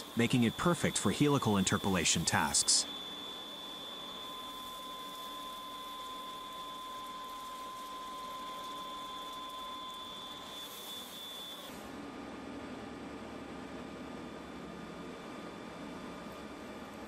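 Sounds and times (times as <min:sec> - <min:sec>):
drill two-tone whine: 0:00.0 - 0:11.9.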